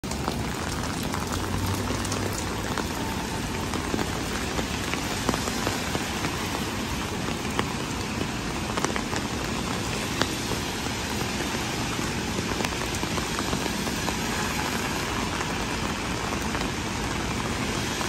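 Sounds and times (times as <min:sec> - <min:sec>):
rain on wet pavement: 0:00.0 - 0:18.0
raindrops ticking close by: 0:00.0 - 0:18.0.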